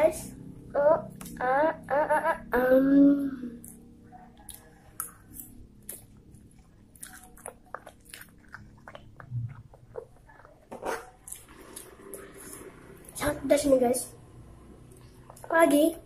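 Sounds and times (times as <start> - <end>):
close chewing with mouth smacks: 3.6 - 13.1.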